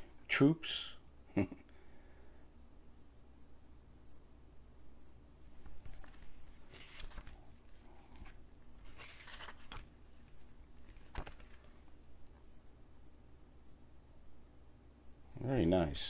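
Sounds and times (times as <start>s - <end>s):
paper rustling: 5.5s - 12.0s.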